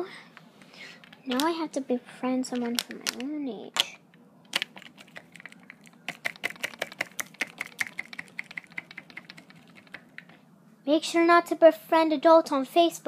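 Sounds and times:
typing on a keyboard: 4.5 - 10.4.

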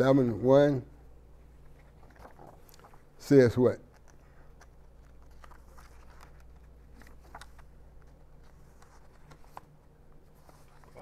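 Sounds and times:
low room hum: 0.0 - 11.0
paper pages rustling: 1.6 - 3.2, 3.8 - 11.0.

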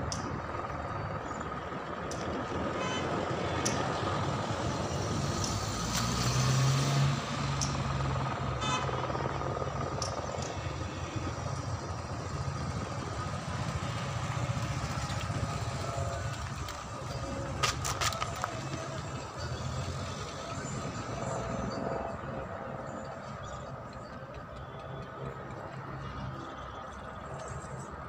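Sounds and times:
vehicle engines and road noise: 0.0 - 28.0
thin steady whine: 7.1 - 28.0.

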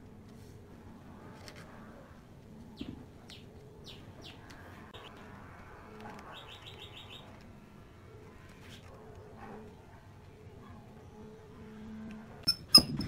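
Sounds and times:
faint background noise: 0.0 - 13.0
small birds chirping: 2.6 - 7.6.

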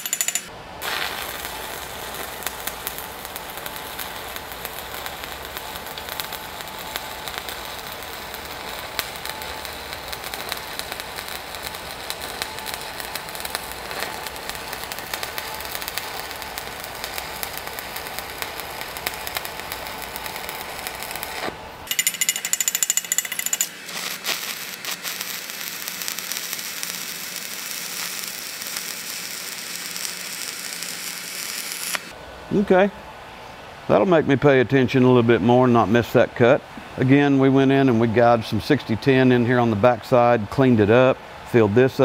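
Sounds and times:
welding arc crackling: 0.0 - 32.2.

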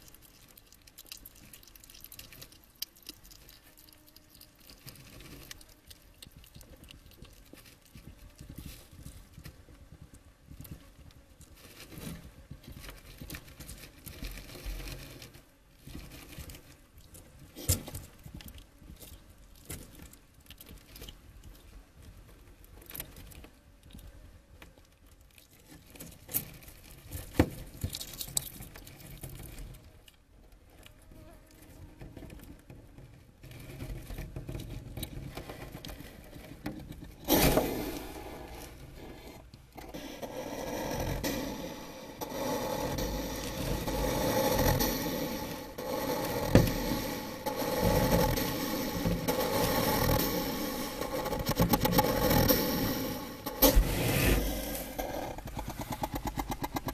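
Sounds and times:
hedgehog chewing wet clicks: 0.0 - 8.1, 27.8 - 28.9.

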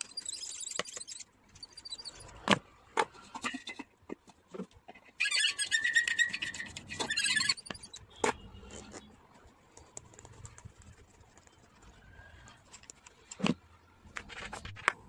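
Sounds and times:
high scratchy squeak: 0.0 - 2.4, 5.2 - 9.1.

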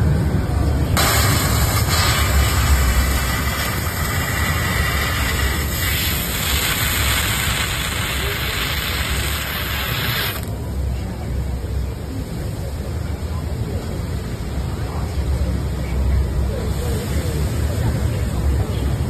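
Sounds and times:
low machine rumble: 0.0 - 19.0
laser cutter gas hiss: 1.0 - 10.6.

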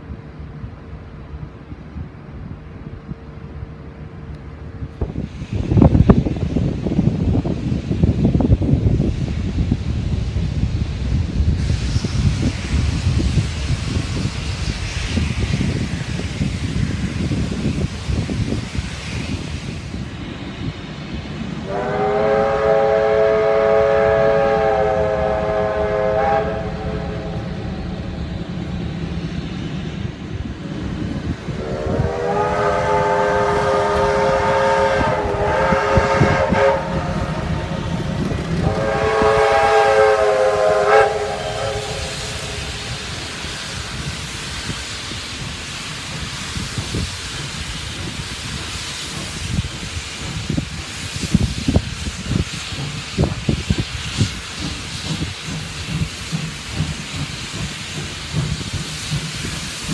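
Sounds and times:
low rumble of moving train: 0.0 - 59.9
steam locomotive whistle blasts: 21.6 - 27.7, 31.6 - 37.9, 38.6 - 43.4.

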